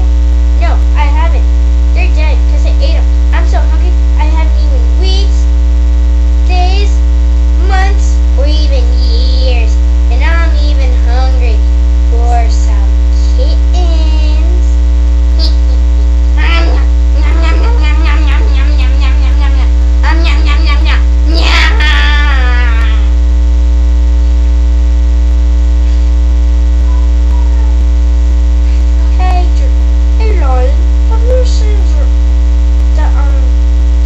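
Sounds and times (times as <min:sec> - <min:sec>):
electrical mains hum: 0:00.0 - 0:34.0
girl talking in puppet voice: 0:00.6 - 0:05.5, 0:06.4 - 0:07.0, 0:07.6 - 0:14.8, 0:15.4 - 0:23.1, 0:26.8 - 0:27.8, 0:29.0 - 0:32.1, 0:33.0 - 0:33.6.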